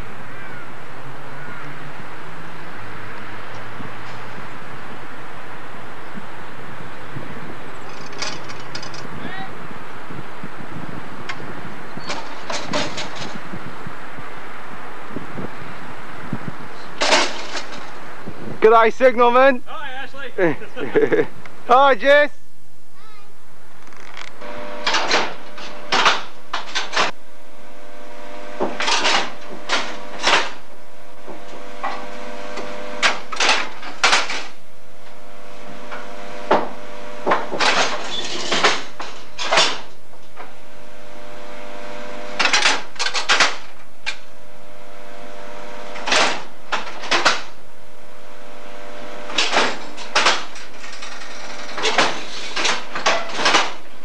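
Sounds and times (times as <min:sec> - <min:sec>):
faint steady hum: 0:22.4 - 0:38.2, 0:38.8 - 0:53.1.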